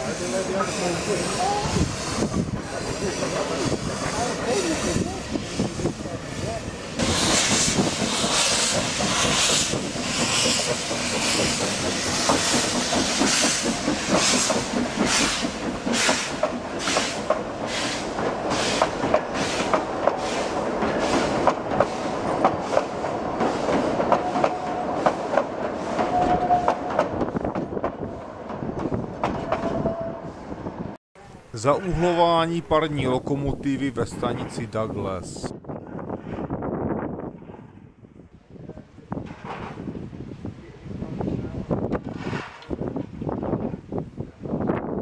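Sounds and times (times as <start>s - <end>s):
steam train chuffing: 0.0s - 28.2s.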